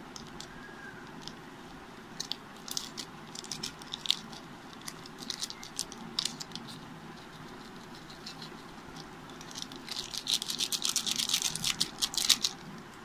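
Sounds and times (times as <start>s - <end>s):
steady low hum: 0.0s - 13.0s
foil sachet crinkling: 2.2s - 8.5s, 9.3s - 12.7s.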